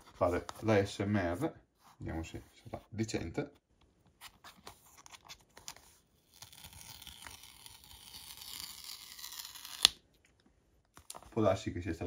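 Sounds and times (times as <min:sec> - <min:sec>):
seal strip tearing rasp: 0:06.3 - 0:10.0.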